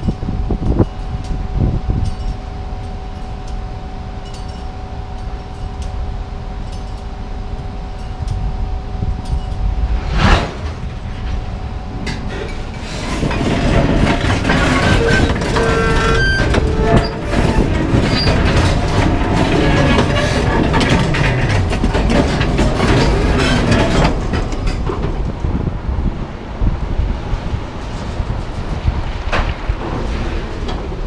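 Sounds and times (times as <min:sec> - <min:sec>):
freight wagons rumbling on track: 0:00.0 - 0:31.0
brief whoosh: 0:09.5 - 0:12.8
wagons clanking and clinking: 0:12.0 - 0:25.6.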